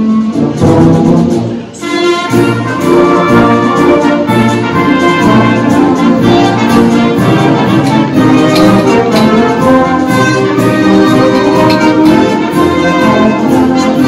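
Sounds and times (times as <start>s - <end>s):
wind band playing chords: 0.0s - 14.0s.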